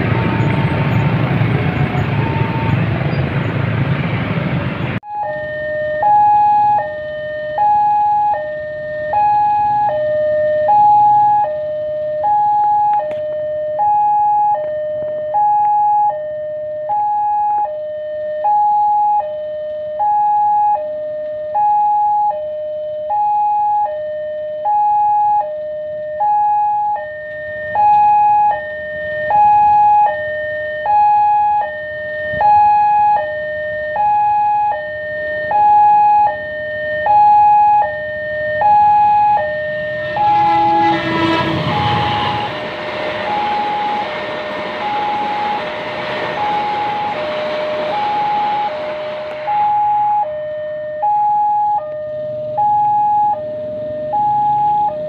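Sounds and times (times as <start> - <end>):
two-tone crossing alarm: 0.0 - 3.6, 5.0 - 55.0
train rolling past: 0.0 - 5.0, 39.8 - 50.6.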